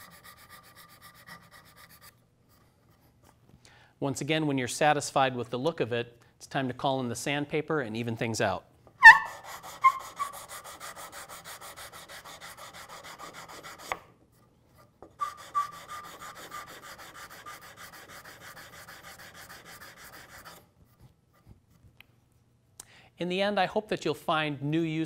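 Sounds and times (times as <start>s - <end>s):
sandpaper rubbing on wood: 0.0s - 2.1s, 9.0s - 14.0s, 15.2s - 20.6s.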